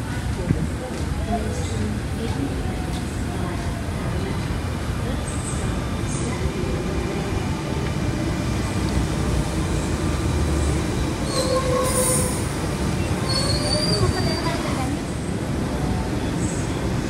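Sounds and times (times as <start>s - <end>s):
train rumbling past: 0.0s - 17.0s
high wheel squeal: 10.6s - 15.0s.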